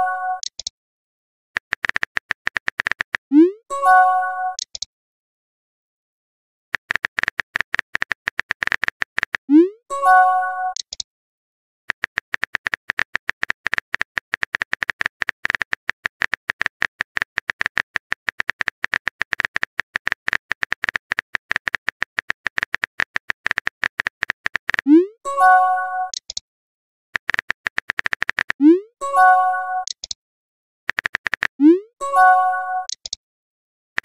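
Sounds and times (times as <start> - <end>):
message chime: 0.0 - 0.4, 32.0 - 32.9
phone keyboard clicks: 0.4 - 0.7, 1.6 - 3.2, 4.6 - 4.9, 6.8 - 9.5, 10.8 - 11.0, 11.9 - 24.9, 26.1 - 26.4, 27.2 - 28.6, 29.8 - 30.2, 30.9 - 31.6, 32.8 - 33.2.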